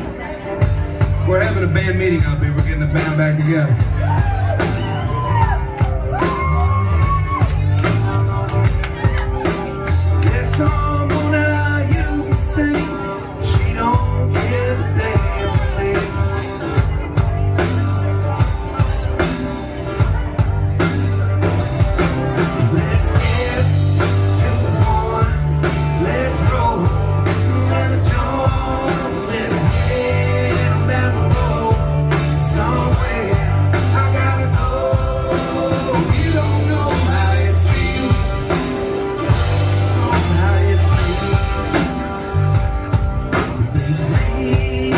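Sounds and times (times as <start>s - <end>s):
bass: 0.0s - 44.9s
drums: 0.0s - 44.9s
electric guitars: 0.0s - 44.9s
lead vocalist singing: 9.0s - 17.8s, 22.0s - 44.9s.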